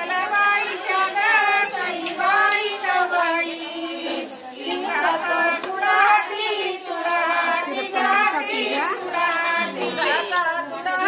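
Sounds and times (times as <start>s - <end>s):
woman singing unaccompanied: 0.0s - 11.0s.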